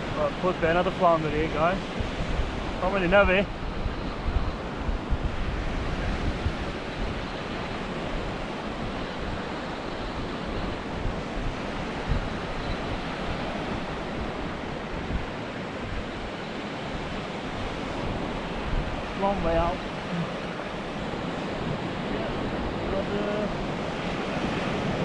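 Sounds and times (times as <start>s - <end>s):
surf breaking on a beach: 0.0s - 25.0s
wind buffeting the microphone: 0.0s - 25.0s.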